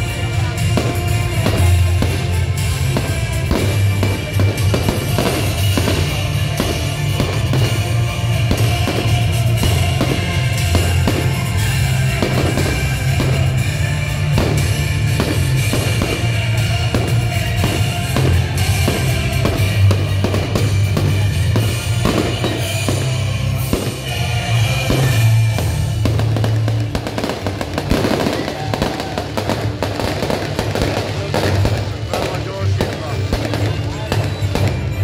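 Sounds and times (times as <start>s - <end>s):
fireworks crackling: 0.0s - 35.0s
fireworks shells bursting: 0.0s - 35.0s
music with heavy bass: 0.0s - 35.0s.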